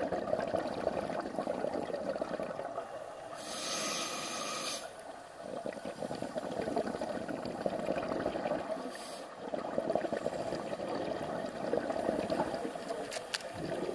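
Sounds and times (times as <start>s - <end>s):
exhaled bubbles underwater: 0.0s - 13.9s
regulator inhalation hiss: 3.3s - 5.0s, 8.8s - 9.4s.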